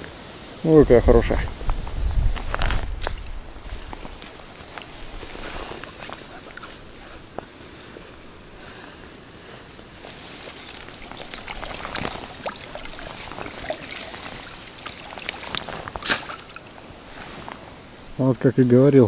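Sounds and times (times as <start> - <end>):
water splashing and dripping: 2.6 - 7.5, 9.9 - 17.2.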